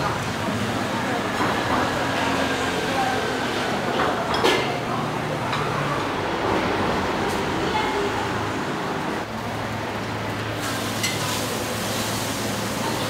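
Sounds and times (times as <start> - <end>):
traffic and street noise: 0.0 - 13.0.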